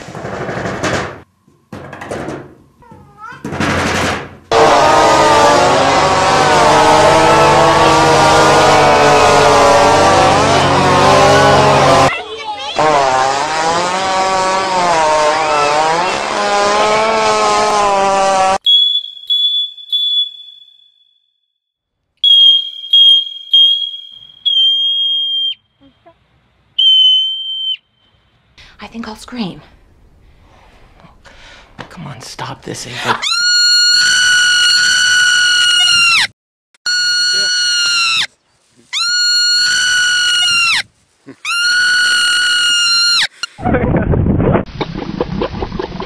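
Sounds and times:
marmot screaming: 33.2s - 36.3s, 36.9s - 38.3s, 38.9s - 43.4s.

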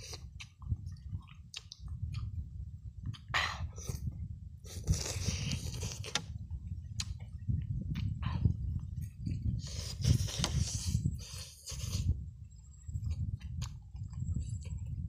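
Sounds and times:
man chewing food: 0.0s - 2.4s, 3.0s - 6.3s, 6.9s - 12.2s, 12.9s - 15.0s
low rumble: 0.0s - 11.2s
wet mouth clicks and smacks: 0.2s - 2.3s, 7.0s - 7.3s.

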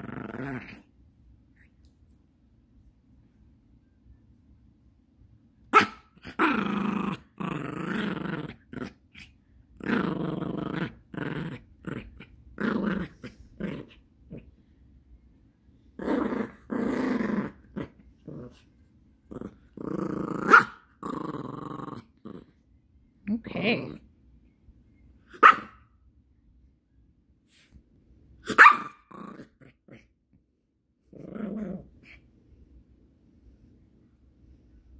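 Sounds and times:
dog play-growling: 0.0s - 1.0s, 6.2s - 14.6s, 15.9s - 22.7s, 29.0s - 30.2s, 31.0s - 32.4s.

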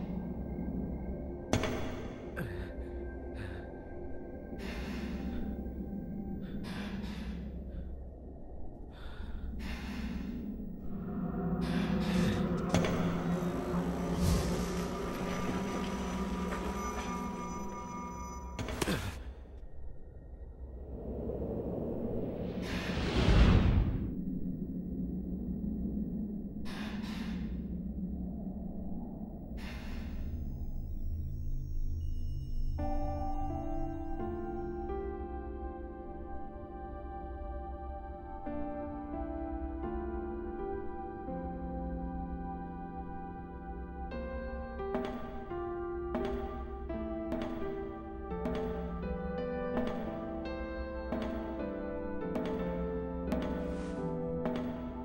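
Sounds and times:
steady low drone: 0.0s - 55.0s
person breathing: 1.8s - 8.1s, 8.8s - 14.6s, 26.6s - 27.8s, 29.5s - 30.5s.

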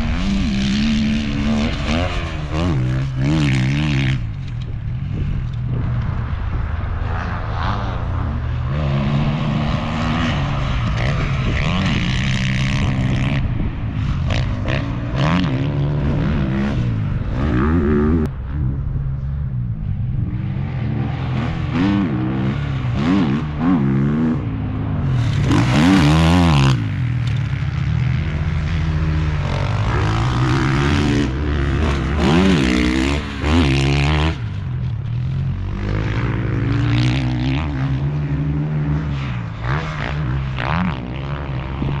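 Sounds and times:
dirt bike engines revving: 0.0s - 42.0s
loud rushing noise: 19.6s - 36.6s.

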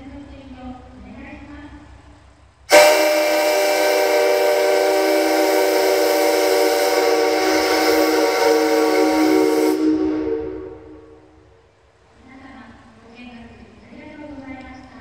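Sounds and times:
steam whistle blast: 2.7s - 11.2s
rushing hiss: 2.7s - 11.4s.

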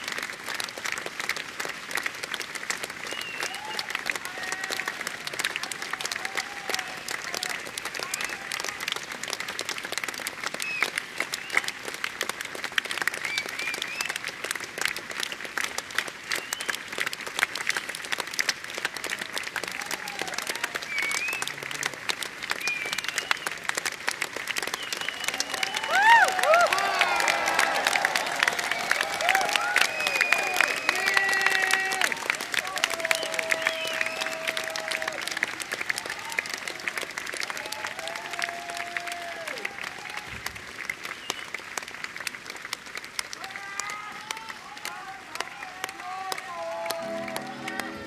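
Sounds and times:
audience applauding: 0.0s - 48.0s
whistles and shouts: 3.0s - 3.9s, 13.2s - 14.2s, 20.8s - 21.6s, 22.6s - 23.6s, 24.7s - 26.6s, 28.6s - 31.9s, 33.0s - 34.6s.

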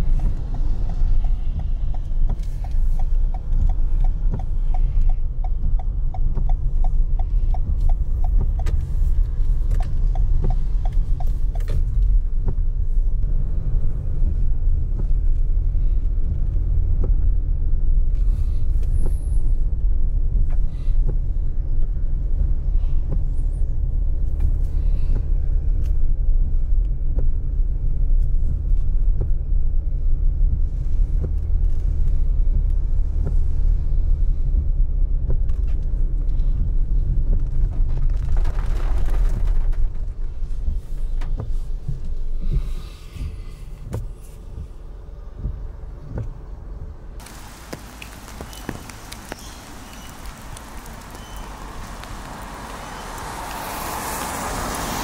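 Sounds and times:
rain drumming on car roof: 36.4s - 42.7s, 47.2s - 55.0s.

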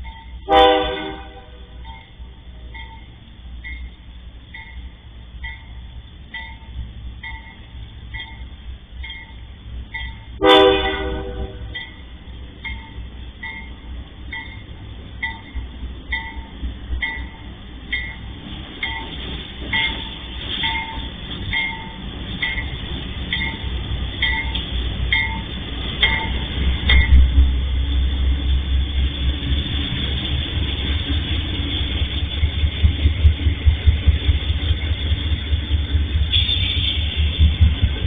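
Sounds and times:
diesel locomotive engine rumble: 0.0s - 38.0s
level crossing warning bell: 1.8s - 27.2s.

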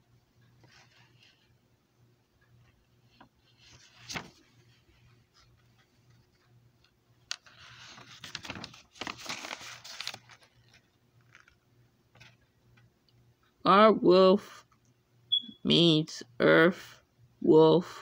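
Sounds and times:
paper pages rustling: 3.1s - 6.3s, 7.3s - 12.4s.

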